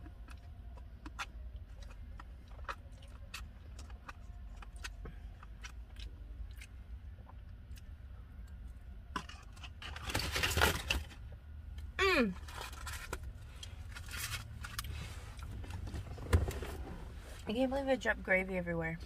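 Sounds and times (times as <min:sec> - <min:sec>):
wet chewing clicks: 0:00.0 - 0:08.7
low steady hum: 0:00.0 - 0:19.0.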